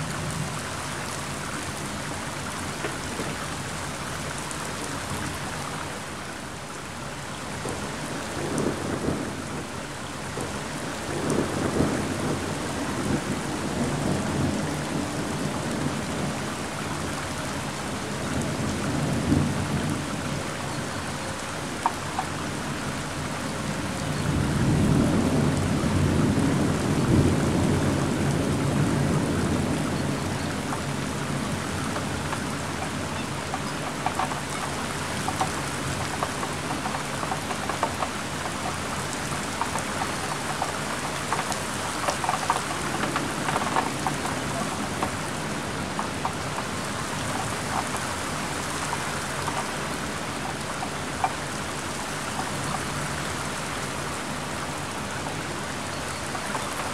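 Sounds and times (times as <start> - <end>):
heavy rain falling: 0.0 - 56.9
rolling thunder: 24.2 - 33.2
drops ticking on a surface: 31.9 - 51.4.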